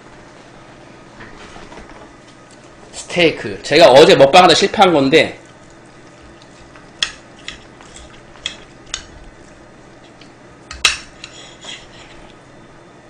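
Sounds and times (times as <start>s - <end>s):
knife scraping on plate: 7.0s - 9.1s, 10.1s - 12.4s.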